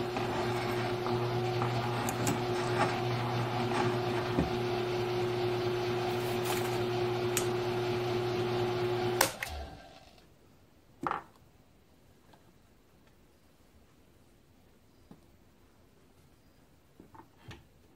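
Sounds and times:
drill press humming: 0:00.0 - 0:10.2.

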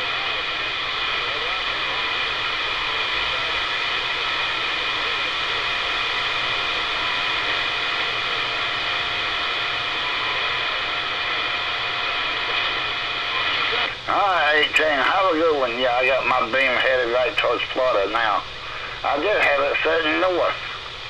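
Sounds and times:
radio static hiss: 0:00.0 - 0:21.0.

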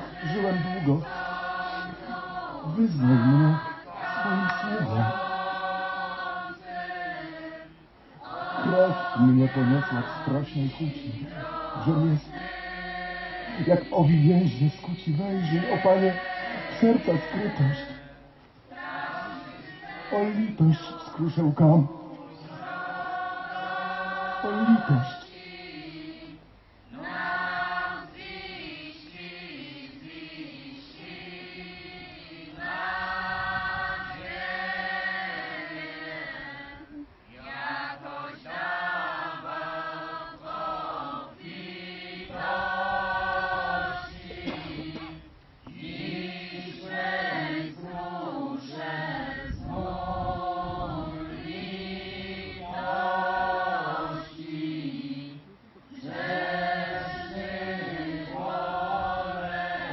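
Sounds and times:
lower voices sustaining notes: 0:00.0 - 0:07.5, 0:08.2 - 0:25.4
choir chanting slow melody: 0:00.0 - 0:59.9.

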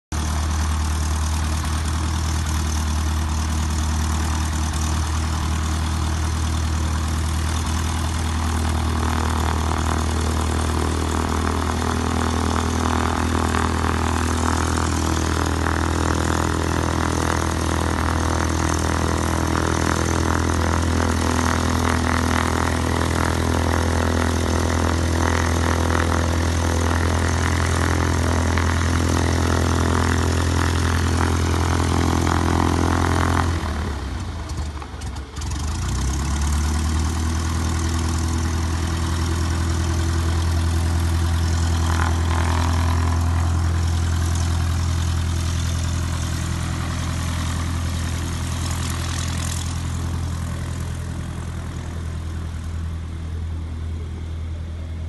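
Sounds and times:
propeller plane engine idling: 0:00.1 - 0:55.0.

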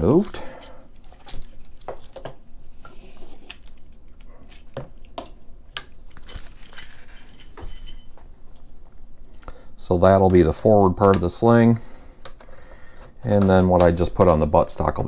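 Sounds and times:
metal sling hardware jingling: 0:06.2 - 0:08.2.

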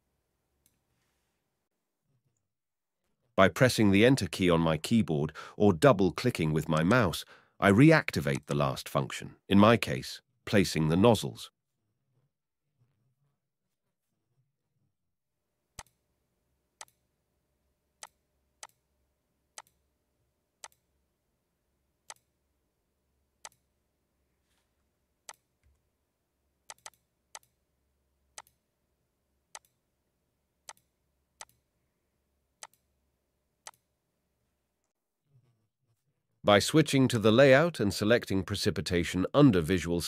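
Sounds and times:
computer mouse clicking: 0:19.6 - 0:19.8, 0:20.6 - 0:20.8, 0:22.1 - 0:22.3, 0:23.4 - 0:23.6, 0:26.7 - 0:27.6, 0:28.4 - 0:28.6, 0:29.6 - 0:29.8, 0:30.7 - 0:31.6, 0:32.6 - 0:32.9, 0:33.6 - 0:33.8.

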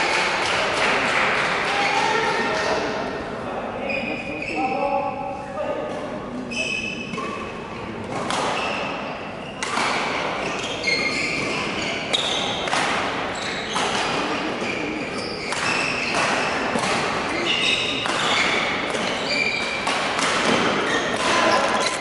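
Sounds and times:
shoe squeaks on court floor: 0:03.8 - 0:04.8, 0:06.5 - 0:07.5, 0:08.5 - 0:12.7, 0:13.3 - 0:22.0
rackets hitting shuttlecock: 0:08.1 - 0:08.9, 0:09.6 - 0:10.7, 0:11.3 - 0:14.8, 0:15.4 - 0:22.0.

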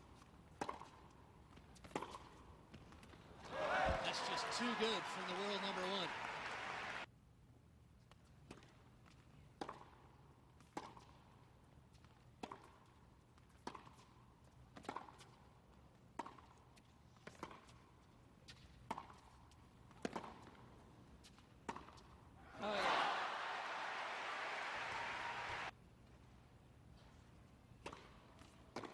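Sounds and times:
tennis ball bouncing: 0:00.6 - 0:03.2, 0:16.2 - 0:16.6, 0:18.5 - 0:22.2, 0:27.8 - 0:28.9.

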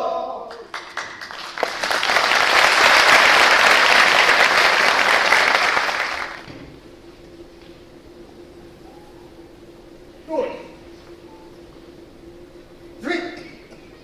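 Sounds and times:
audience applauding: 0:00.5 - 0:06.5.

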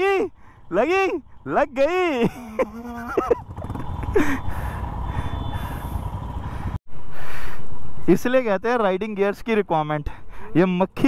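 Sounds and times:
motorcycle engines idling: 0:00.0 - 0:06.8.

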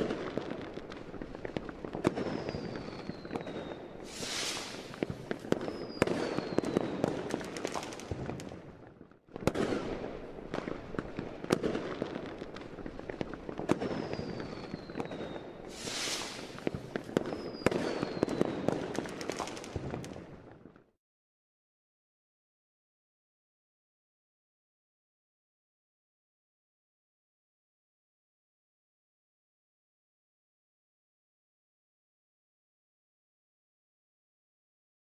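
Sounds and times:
firecrackers crackling: 0:00.0 - 0:20.9
fireworks bangs: 0:00.0 - 0:20.9
falling firework whistles: 0:02.0 - 0:08.5, 0:13.6 - 0:20.2.

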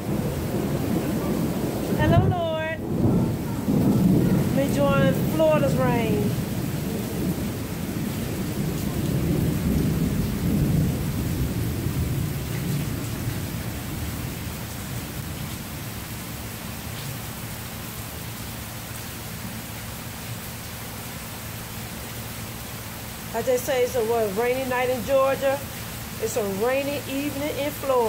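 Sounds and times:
rolling thunder: 0:00.0 - 0:15.9
falling rain hiss: 0:00.0 - 0:28.0.

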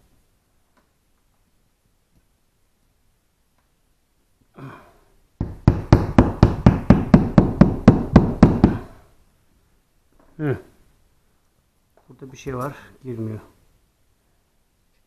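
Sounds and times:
hammer tapping wall anchor: 0:05.4 - 0:09.0.

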